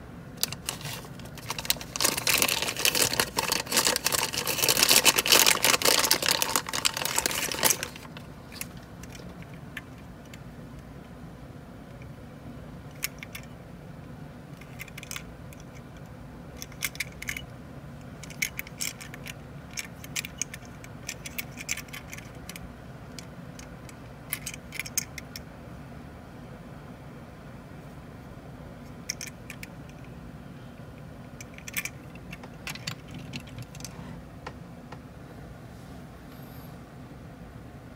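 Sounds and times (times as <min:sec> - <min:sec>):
plastic bag crinkling: 0:00.4 - 0:08.7.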